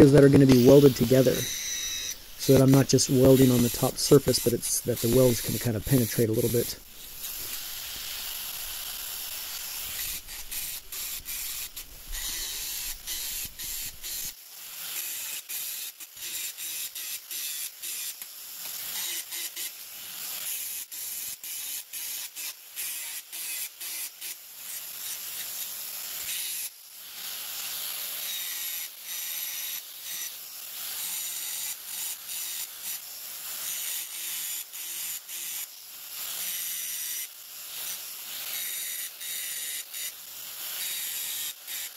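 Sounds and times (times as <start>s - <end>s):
angle grinder grinding steel: 0.0s - 19.7s, 27.6s - 35.6s, 36.2s - 41.9s.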